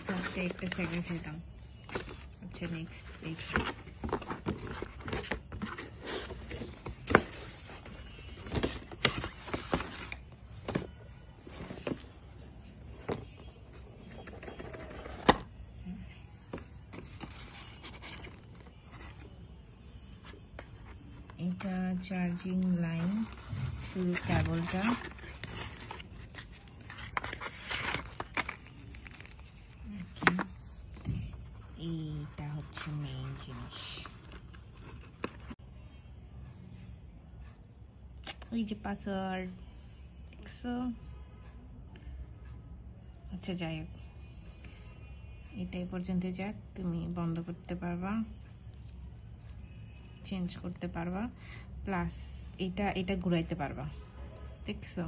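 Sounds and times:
paper wrap crinkling: 0.0s - 1.2s, 22.5s - 30.4s, 48.7s - 49.6s
cardboard and paper rustling: 0.0s - 15.5s, 16.4s - 19.4s, 20.2s - 35.6s, 48.4s - 51.4s.

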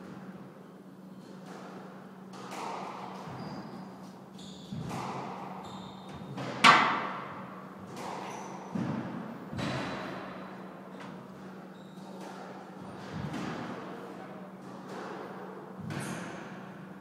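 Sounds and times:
squash ball striking rackets and walls: 1.3s - 17.0s
shoes squeaking on wooden floor: 3.2s - 6.4s.

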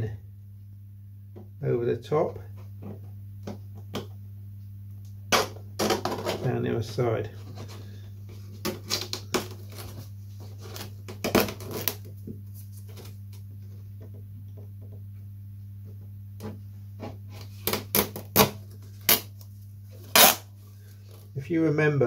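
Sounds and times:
steady low hum: 0.0s - 22.0s
knife cutting and peeling film: 8.6s - 10.0s, 10.6s - 12.1s, 17.4s - 19.4s, 20.0s - 20.5s.

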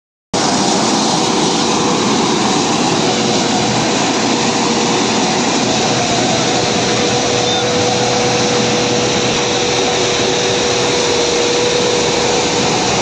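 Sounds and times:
combine harvester running: 0.4s - 13.0s.

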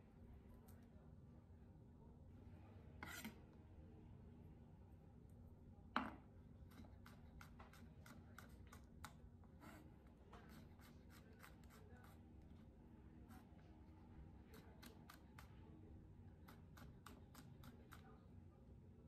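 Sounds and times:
knife slicing on cutting board: 3.0s - 3.4s.

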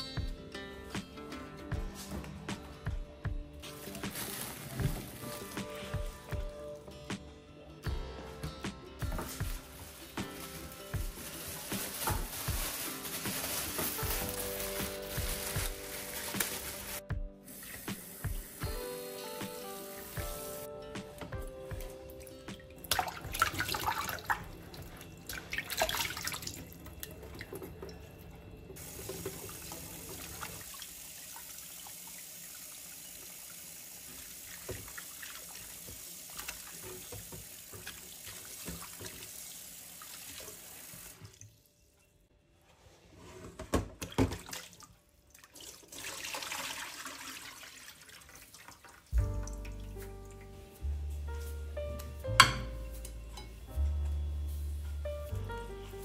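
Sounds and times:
soft music: 0.0s - 30.8s, 49.0s - 56.0s.

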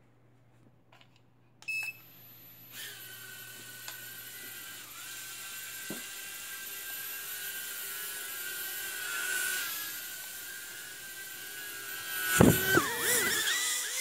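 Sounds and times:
toy drone motors whining: 2.0s - 14.0s
drone knocking camera: 12.2s - 13.4s.

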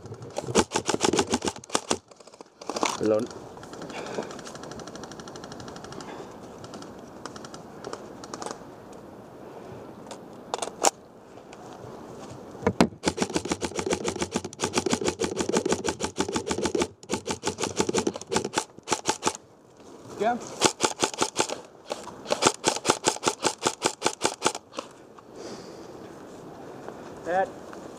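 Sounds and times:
airsoft gun firing full-auto: 0.5s - 2.0s, 13.0s - 19.4s, 20.6s - 21.6s, 22.2s - 24.6s.

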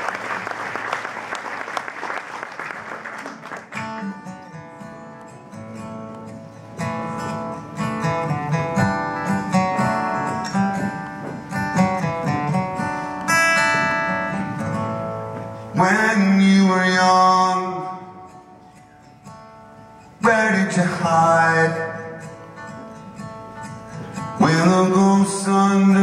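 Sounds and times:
audience applause: 0.0s - 4.1s
acoustic guitar picked notes: 3.4s - 26.0s.

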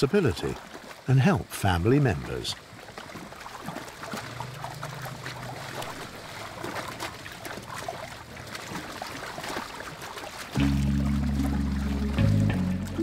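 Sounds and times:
mud and water sloshing: 0.0s - 13.0s
background music: 10.6s - 13.0s.

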